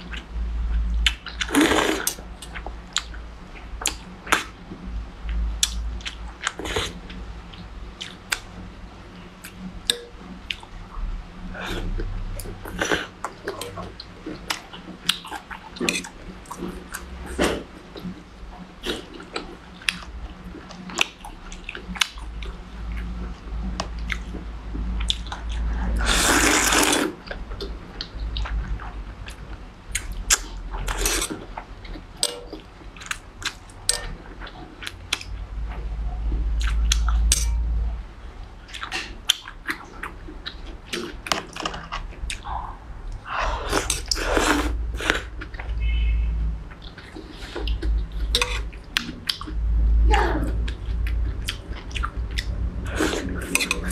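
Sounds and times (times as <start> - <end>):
wet chewing and mouth clicks: 23.7 - 35.4, 38.6 - 46.1, 50.6 - 53.9
noodles being slurped: 26.0 - 27.2.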